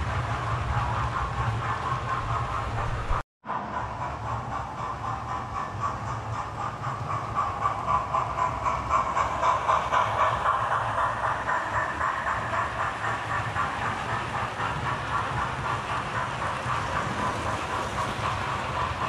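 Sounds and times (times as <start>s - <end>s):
wheels clicking over rail joints: 3.8s - 19.0s.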